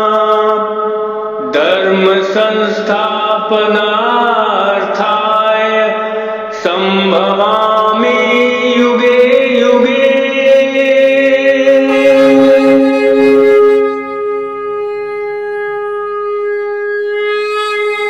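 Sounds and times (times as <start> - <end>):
horns blowing long notes: 11.8 - 15.3.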